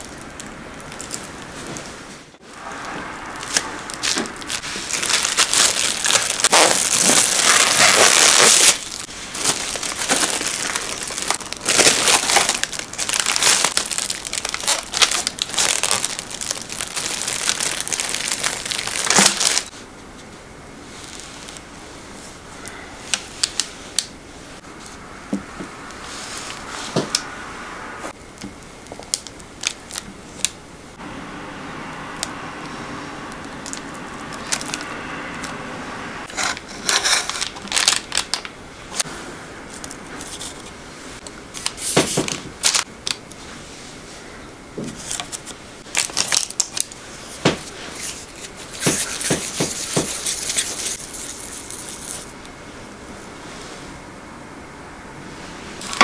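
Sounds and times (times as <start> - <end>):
parchment paper rustling: 0.0 - 19.8, 36.3 - 38.5, 41.5 - 43.5, 44.9 - 52.4.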